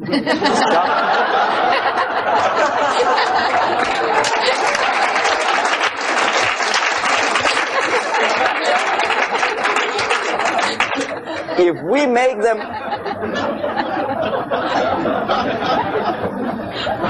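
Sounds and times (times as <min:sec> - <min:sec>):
audience laughing: 0:00.0 - 0:17.0
audience applauding: 0:00.6 - 0:11.6.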